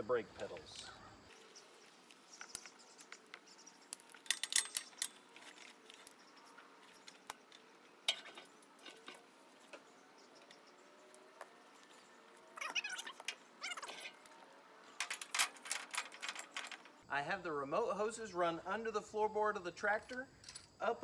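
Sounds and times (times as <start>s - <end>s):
rubber hoses scraping and rustling: 0.4s - 17.0s.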